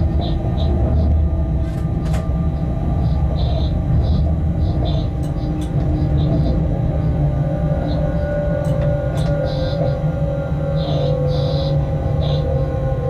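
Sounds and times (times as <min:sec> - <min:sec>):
steady hum of tones: 0:00.0 - 0:13.0
train low rumble: 0:00.0 - 0:13.0
high chirping squeaks: 0:03.0 - 0:06.6.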